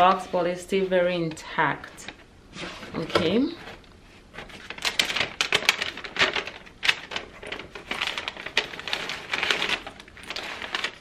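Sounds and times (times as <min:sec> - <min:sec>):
tissue paper rustling: 0:02.5 - 0:11.0.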